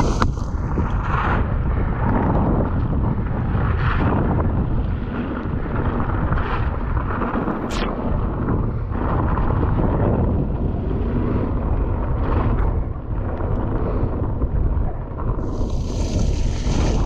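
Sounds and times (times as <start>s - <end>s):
bike tyres rolling on gravel: 0.0s - 1.4s, 15.4s - 17.0s
wind buffeting microphone: 0.0s - 17.0s.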